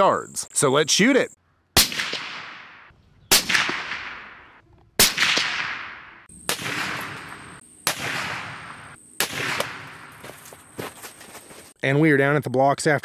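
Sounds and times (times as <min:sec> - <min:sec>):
rifle shots with echo: 0:01.8 - 0:10.2.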